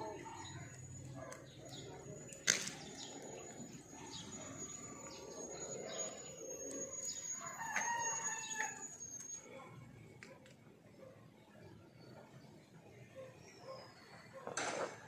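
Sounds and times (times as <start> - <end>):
steady high-pitched tone: 3.1 - 9.7
rooster crowing: 7.2 - 8.9.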